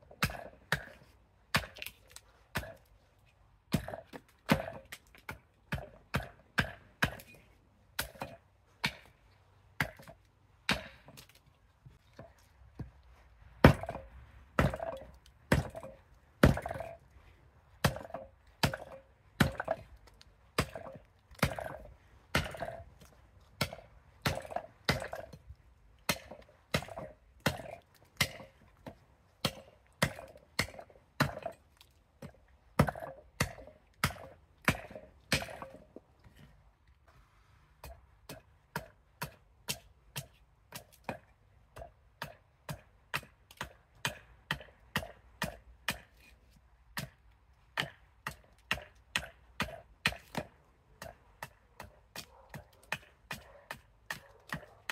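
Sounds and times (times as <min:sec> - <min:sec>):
axe chopping wood: 0:00.0 - 0:02.9, 0:03.7 - 0:09.2, 0:09.8 - 0:11.4, 0:13.6 - 0:17.0, 0:17.8 - 0:25.4, 0:26.0 - 0:31.6, 0:32.2 - 0:36.0, 0:37.8 - 0:46.3, 0:46.9 - 0:54.9.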